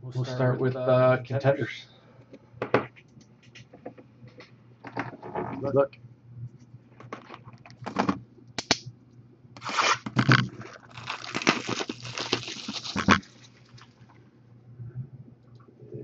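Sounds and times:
shrink wrap crinkling and tearing: 9.6 - 14.1.

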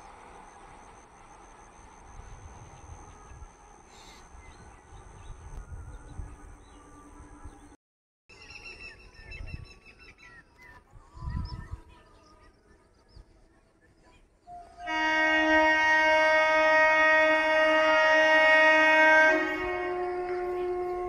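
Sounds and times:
train air horn chord: 14.6 - 21.0.

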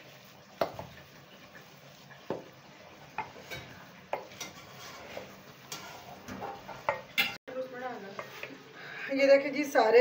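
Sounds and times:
spoon scraping steel bowl: 3.4 - 6.6.

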